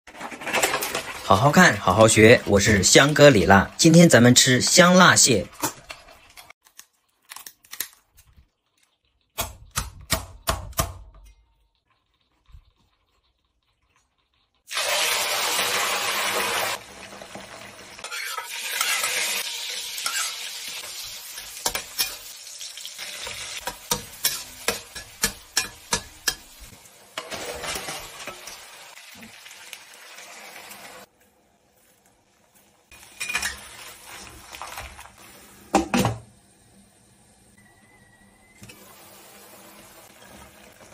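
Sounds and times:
metal spatula scraping a wok: 0:00.1 - 0:01.2, 0:18.0 - 0:22.4, 0:23.0 - 0:26.6, 0:27.2 - 0:28.7, 0:32.9 - 0:34.3
food sizzling in hot oil: 0:08.5 - 0:40.9.

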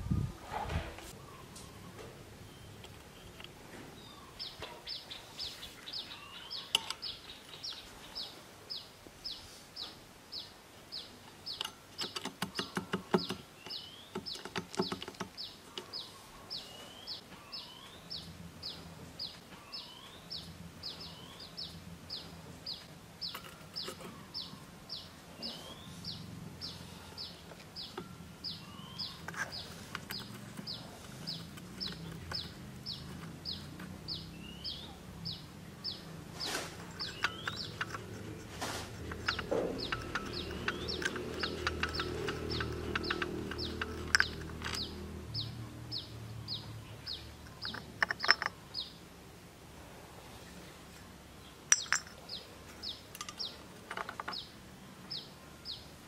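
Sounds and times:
sharp clicks: 0:11.5 - 0:16.0, 0:36.8 - 0:45.6.

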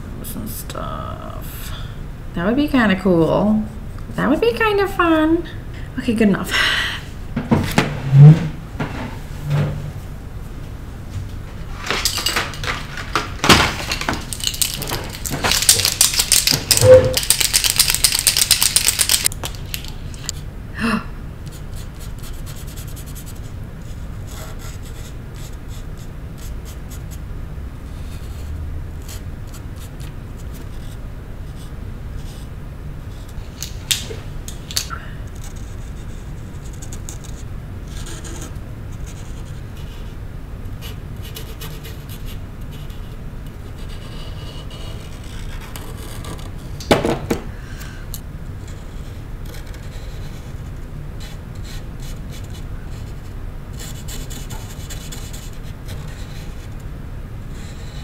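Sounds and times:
rapid rattling and clicking: 0:12.0 - 0:20.3.

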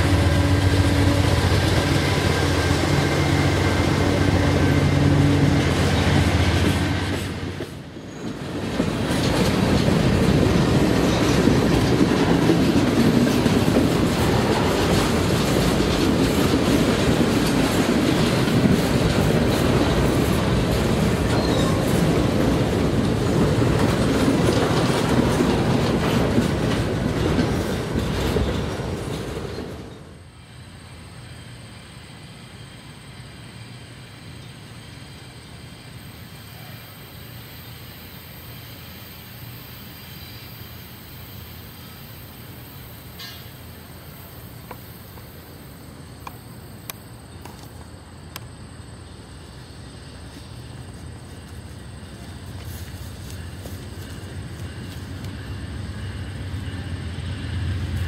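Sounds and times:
wheels clacking over rails: 0:00.0 - 0:30.2
diesel locomotive engines humming: 0:00.0 - 0:58.0.

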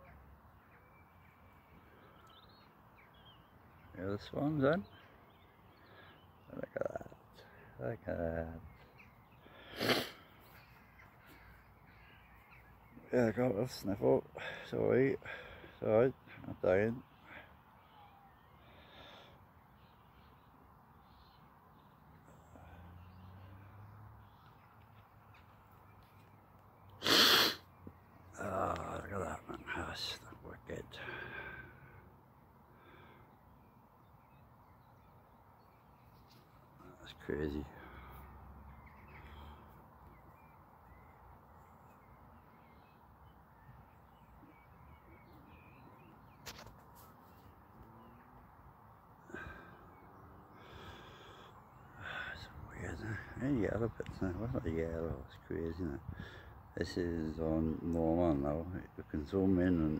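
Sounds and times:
distant bird calls: 0:00.0 - 0:59.9
faint background noise: 0:00.0 - 0:59.9
person sneezing: 0:27.0 - 0:27.6.

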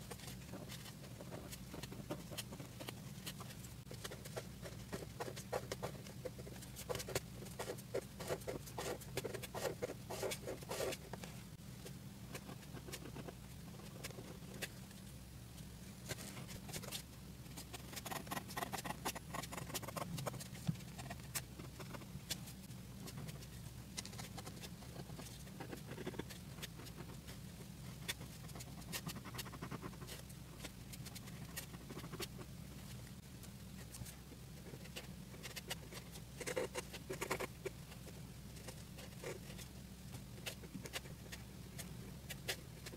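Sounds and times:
steady low hum: 0:00.0 - 0:42.9
pen scratching on paper: 0:00.1 - 0:11.0, 0:17.6 - 0:22.4, 0:28.0 - 0:32.5, 0:34.6 - 0:37.7.

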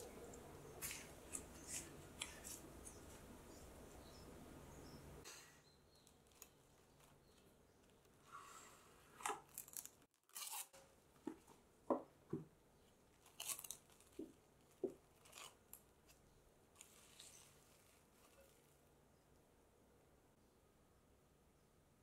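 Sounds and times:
cling film crinkling: 0:06.0 - 0:08.2, 0:09.2 - 0:10.7, 0:13.1 - 0:18.8.

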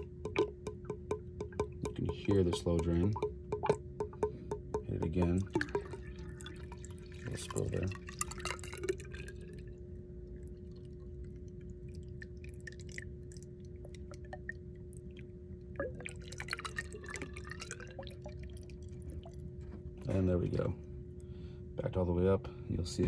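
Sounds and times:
steady hum: 0:00.0 - 0:23.0
water trickling and glugging: 0:05.0 - 0:19.9.

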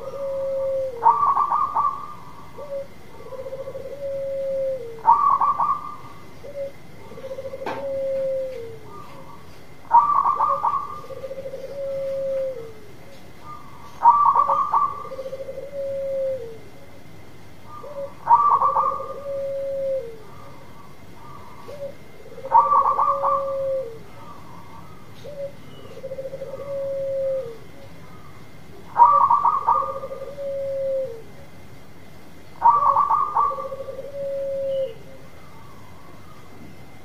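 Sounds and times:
dove cooing: 0:00.0 - 0:17.0, 0:17.6 - 0:31.6, 0:32.6 - 0:37.0.

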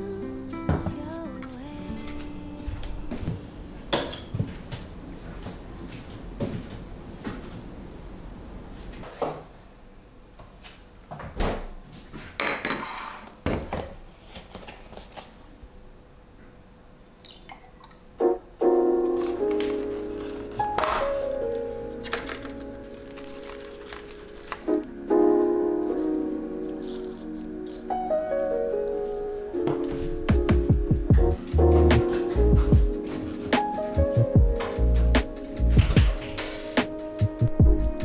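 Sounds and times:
soft piano music: 0:00.0 - 0:04.0, 0:18.1 - 0:38.0.

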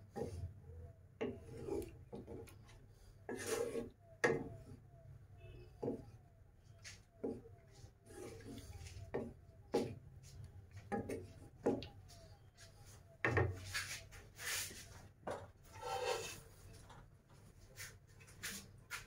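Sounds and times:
spatula scraping pan: 0:01.2 - 0:02.5, 0:03.3 - 0:04.8, 0:08.0 - 0:09.3, 0:15.6 - 0:16.6.

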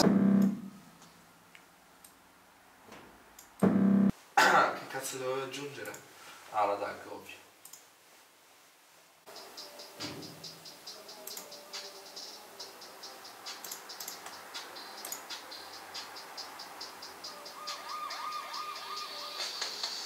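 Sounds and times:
fast ticking hi-hat pattern: 0:09.3 - 0:20.0.

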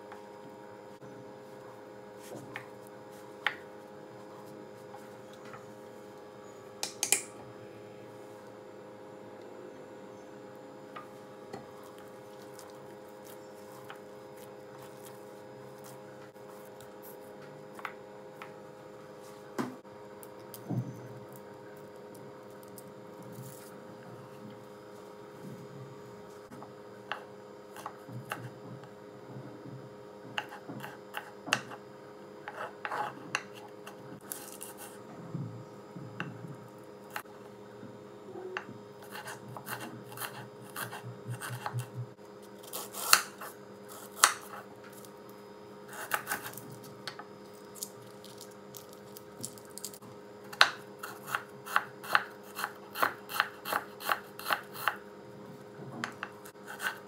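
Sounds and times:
knife chopping on wooden board: 0:39.1 - 0:42.0.

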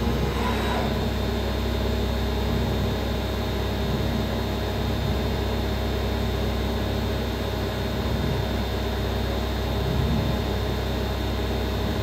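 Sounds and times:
cutter working metal plate: 0:00.0 - 0:01.1
milling machine spindle humming: 0:00.0 - 0:01.4.

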